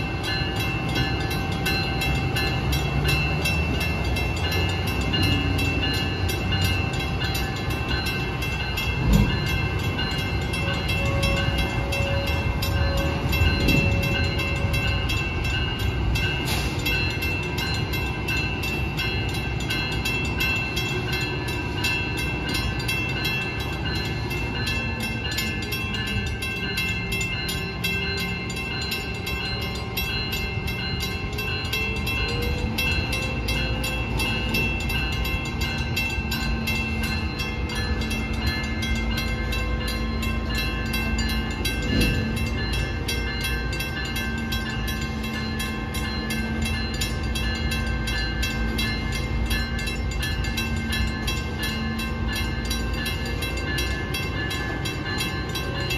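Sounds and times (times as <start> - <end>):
crossing warning bell ringing: 0.0 - 55.9
freight train rumble: 0.0 - 55.9.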